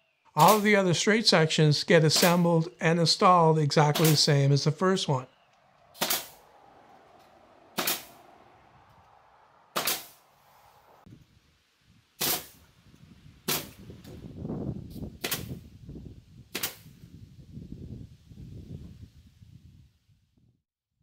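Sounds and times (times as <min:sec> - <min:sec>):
pneumatic nailer firing: 0:06.0 - 0:06.4, 0:07.8 - 0:08.1, 0:09.8 - 0:10.1, 0:15.2 - 0:15.5, 0:16.5 - 0:16.8.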